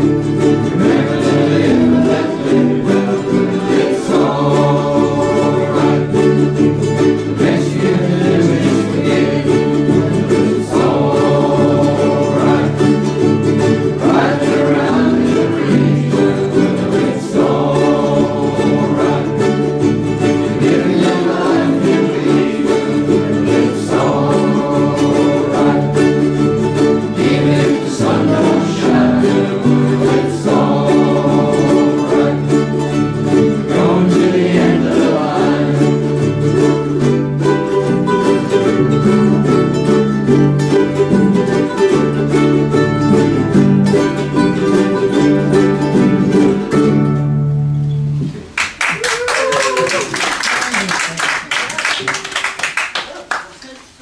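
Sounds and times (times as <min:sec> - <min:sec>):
ukuleles strummed: 0:00.0 - 0:54.0
men singing together: 0:00.6 - 0:36.2.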